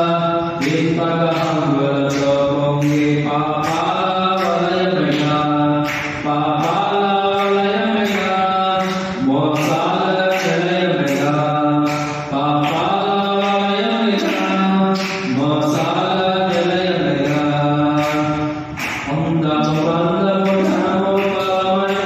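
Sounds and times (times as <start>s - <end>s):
man singing into a microphone: 0.0s - 22.0s
steady beat: 18.6s - 22.0s.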